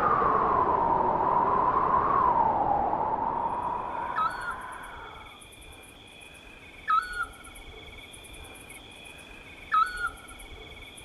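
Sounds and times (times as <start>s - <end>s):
crickets trilling: 3.2s - 11.0s.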